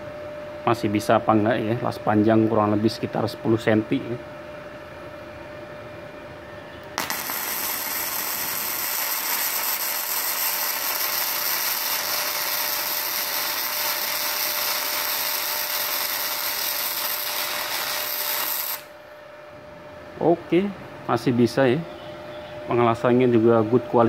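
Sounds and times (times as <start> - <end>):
welding arc crackling: 6.9 - 19.0.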